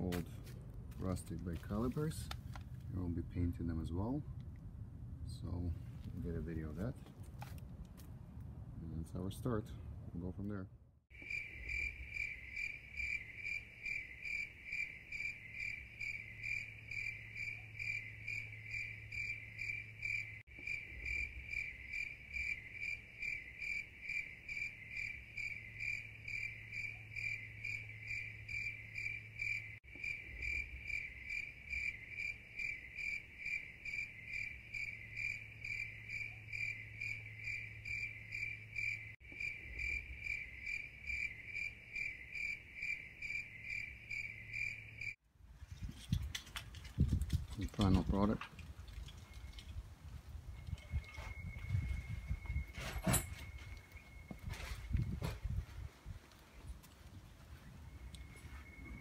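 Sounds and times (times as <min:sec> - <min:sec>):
crickets chirping: 0:11.1 - 0:45.2, 0:49.2 - 0:59.0.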